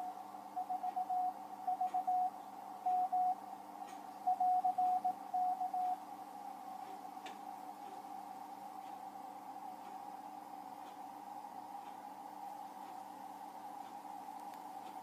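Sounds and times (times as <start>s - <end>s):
morse code tones: 0.0s - 3.4s, 4.3s - 6.0s.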